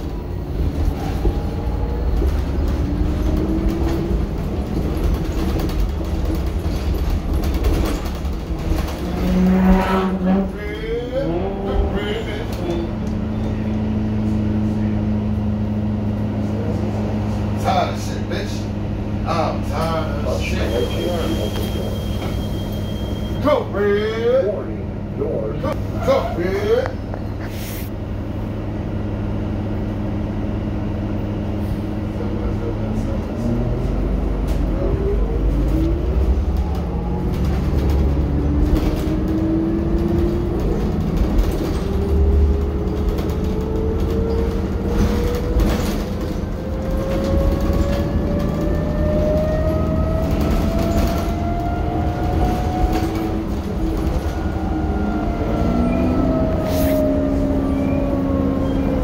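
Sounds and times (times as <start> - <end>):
rattles and knocks from bus body: 0.0 - 10.3, 35.6 - 54.4
bus engine rumble: 0.0 - 59.0.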